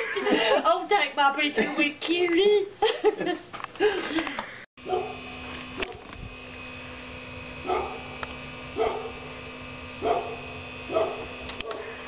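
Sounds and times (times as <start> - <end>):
steady low hum: 0.0 - 12.0
dog barking: 4.8 - 5.2, 7.6 - 8.1, 8.8 - 9.2, 10.0 - 11.8.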